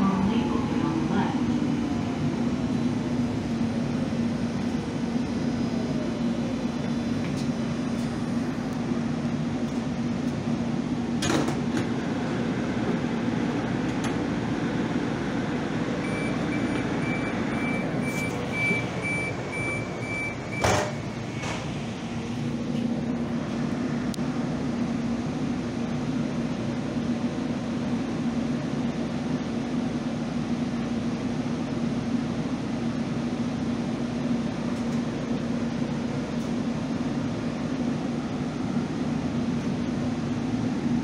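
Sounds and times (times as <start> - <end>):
vehicle running hum: 0.0 - 41.0
repeating high beep: 16.1 - 20.7.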